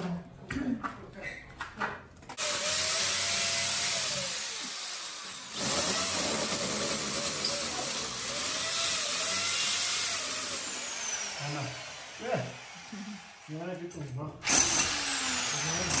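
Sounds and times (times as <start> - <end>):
hammer drill boring into brick: 2.4 - 13.5, 14.4 - 16.0.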